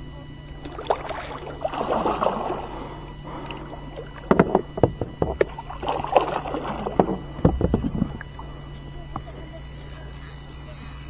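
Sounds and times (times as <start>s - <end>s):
paddle strokes splashing: 0.6s - 9.3s
sharp knocks: 4.2s - 5.6s, 6.8s - 8.3s.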